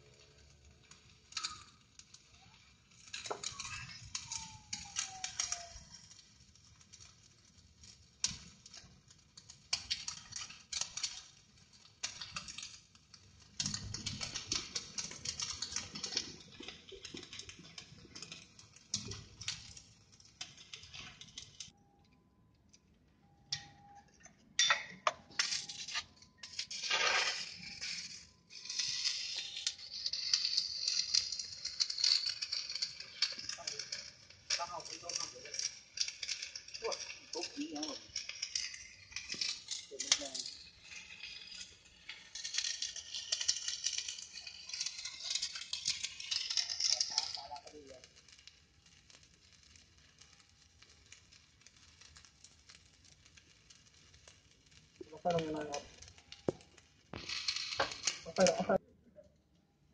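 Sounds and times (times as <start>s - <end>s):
welding arc crackling and sizzling: 0.0s - 21.8s, 23.5s - 59.9s.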